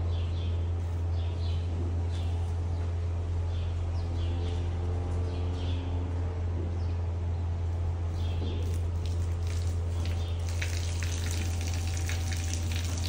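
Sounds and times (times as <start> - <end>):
small birds chirping: 0.0 - 6.0, 6.8 - 13.0
steady low hum: 0.0 - 13.0.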